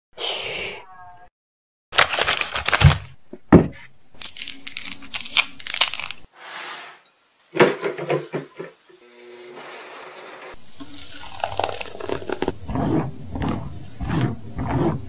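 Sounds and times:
plastic packaging crinkling: 2.0 - 3.2, 4.2 - 6.3
fruit peel tearing: 4.2 - 6.3.

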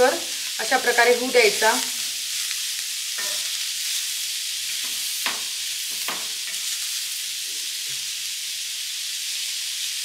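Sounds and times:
onions sizzling in oil: 0.0 - 10.0
spatula scraping pan: 3.1 - 3.8.

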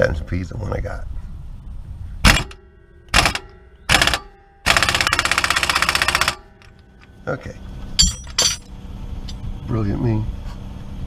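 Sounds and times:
impact wrench hammering: 2.3 - 6.8.

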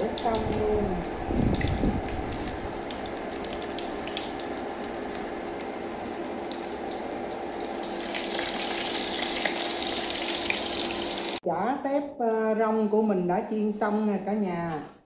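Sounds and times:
fritters sizzling in hot oil: 7.9 - 11.4.

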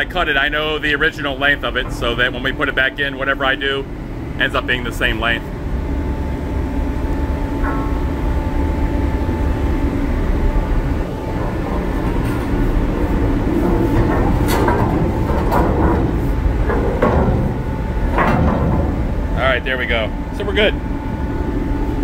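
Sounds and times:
low rumble: 0.0 - 22.0
sharp metallic knocks: 7.5 - 8.9
metal pipe scraping on stairs: 11.2 - 19.0.

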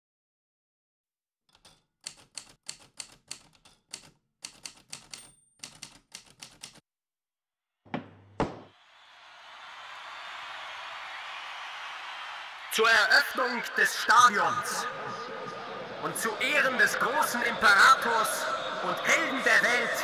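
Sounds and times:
typewriter keys striking: 1.5 - 6.8
heavy thumps: 7.9 - 8.7.

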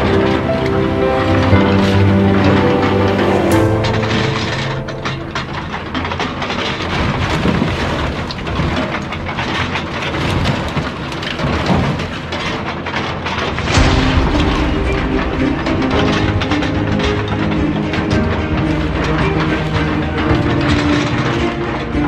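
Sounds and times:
low rumble: 0.0 - 8.2, 13.6 - 20.8
crunching sheet metal: 0.0 - 22.0.

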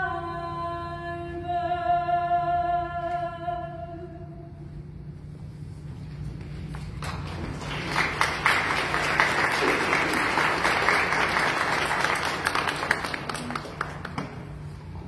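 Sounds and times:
audience applauding: 6.7 - 14.7.

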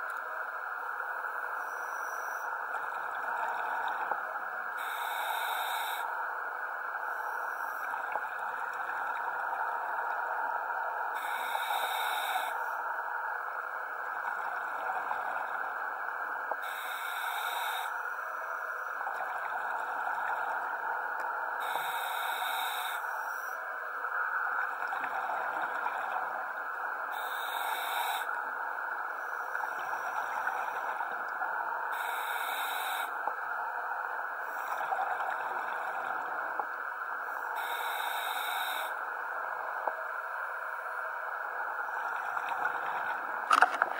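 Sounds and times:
diver regulator breath hiss: 4.8 - 6.1, 11.2 - 12.8, 16.6 - 18.2, 21.6 - 23.6, 27.1 - 28.3, 31.9 - 33.2, 37.3 - 39.0.

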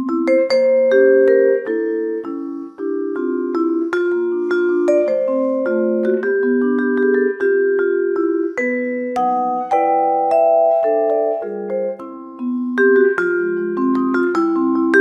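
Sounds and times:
vibraphone melody: 0.0 - 15.0.

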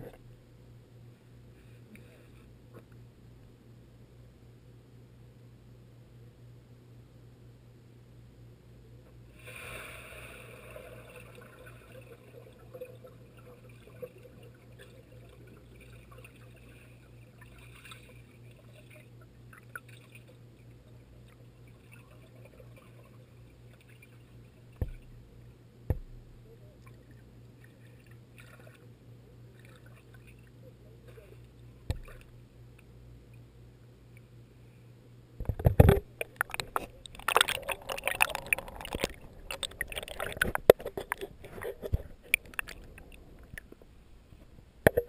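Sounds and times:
underwater low hum: 0.0 - 45.0
underwater splashing and bubbling: 9.4 - 26.3, 31.9 - 32.4, 35.4 - 44.0
water gurgles: 9.4 - 32.4, 35.4 - 45.0.

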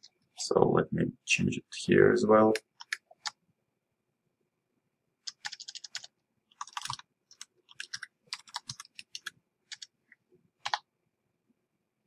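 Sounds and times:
computer keyboard typing: 2.5 - 3.4, 5.2 - 10.0, 10.6 - 10.9.

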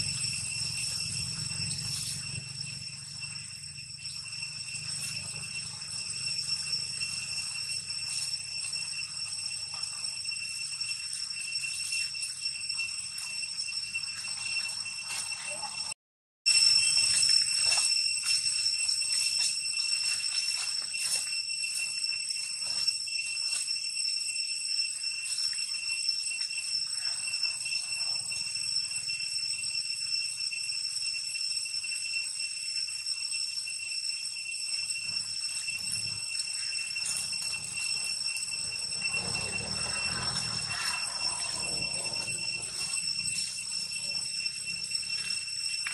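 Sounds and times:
cicadas droning: 0.0 - 45.9
dry leaves rustling and clicking: 0.2 - 2.9, 4.4 - 10.0, 16.6 - 23.7, 35.0 - 45.9.

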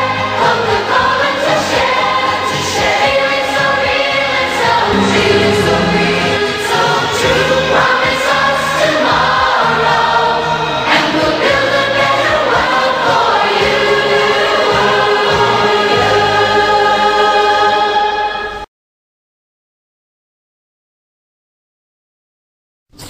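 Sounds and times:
choir singing: 0.0 - 18.4.

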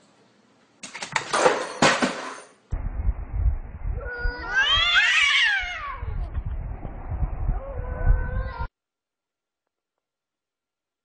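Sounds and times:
low rumble: 2.7 - 5.0, 5.6 - 8.7
cat yowling: 4.0 - 6.1.

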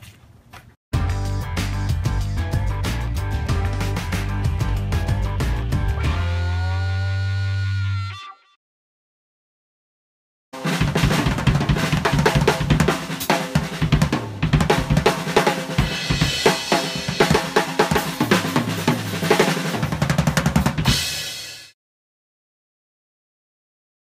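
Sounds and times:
drum kit solo: 10.6 - 21.8.

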